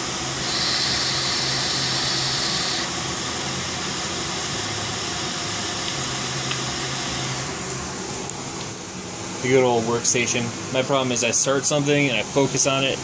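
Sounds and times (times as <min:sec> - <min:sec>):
box fan humming: 0:00.0 - 0:09.6
e-cigarette coil hissing: 0:00.4 - 0:03.0.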